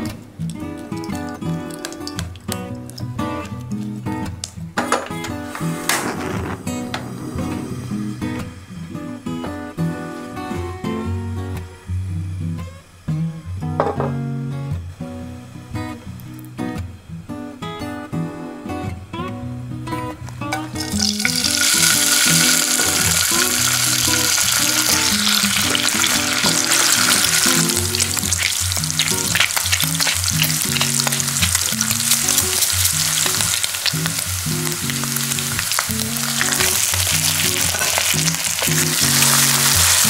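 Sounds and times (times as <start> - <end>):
fat popping and crackling: 0.4 - 9.5, 20.3 - 40.0
bacon sizzling in a pan: 0.6 - 3.3, 20.7 - 40.0.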